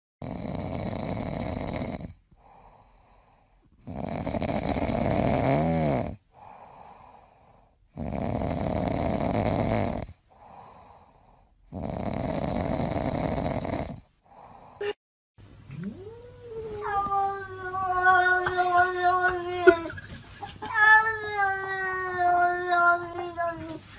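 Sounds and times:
cat snoring: 0.2 - 14.8
cat breathing softly: 2.3 - 3.8, 6.3 - 7.8, 10.3 - 11.6.

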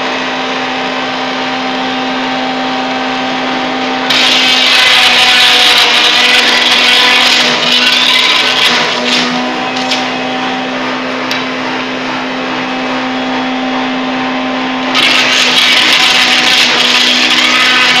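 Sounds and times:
wood chipper humming: 0.0 - 18.0
shredding hiss of wood chipping: 4.1 - 10.2, 15.0 - 18.0.

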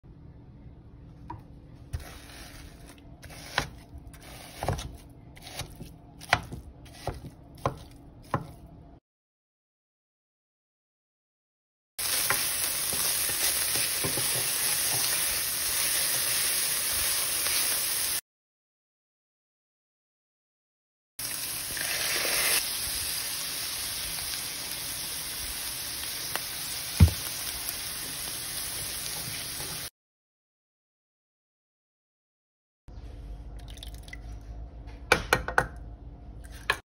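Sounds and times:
meat sizzling: 12.0 - 18.2, 21.2 - 29.9.

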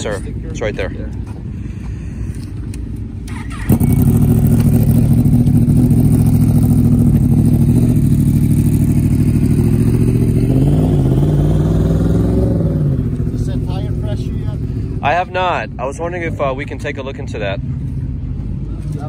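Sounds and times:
motorcycle engine starting and idling: 3.2 - 15.2
engine revving: 3.3 - 15.2.

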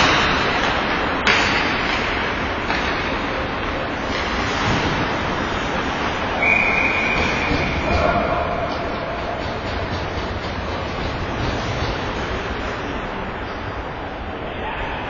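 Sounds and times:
sharp crack of stick or puck: 0.0 - 8.0
skates rushing on ice: 0.0 - 13.6.

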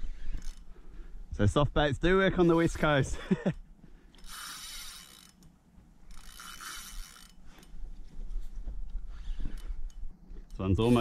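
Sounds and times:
fishing reel whirring: 0.0 - 1.0, 4.0 - 7.8, 8.9 - 11.0.

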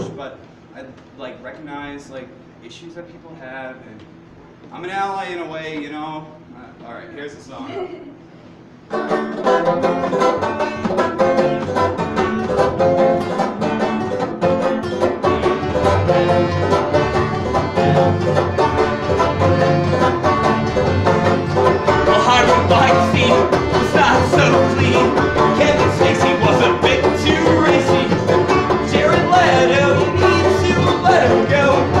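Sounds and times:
banjo picked hard: 8.9 - 32.0
strummed acoustic guitar: 8.9 - 32.0
accordion: 9.0 - 32.0.

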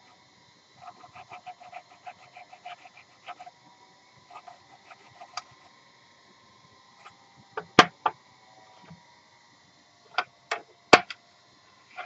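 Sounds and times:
sandpaper squeaking on bowl rim: 0.8 - 3.5, 4.3 - 5.5.

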